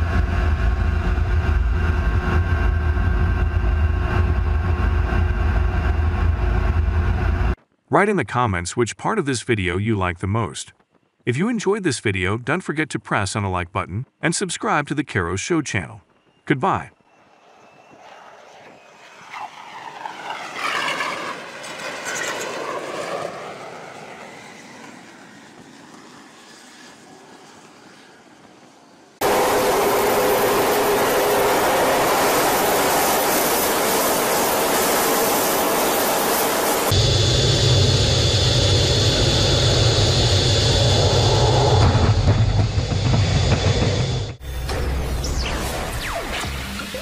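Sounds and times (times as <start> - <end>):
jet engine roaring: 0.0 - 7.6, 17.1 - 47.0
thin high whine: 29.2 - 47.0.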